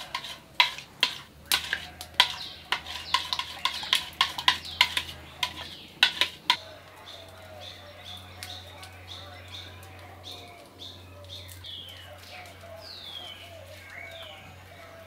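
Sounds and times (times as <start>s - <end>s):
spoon stirring and clinking bowl: 0.0s - 6.6s.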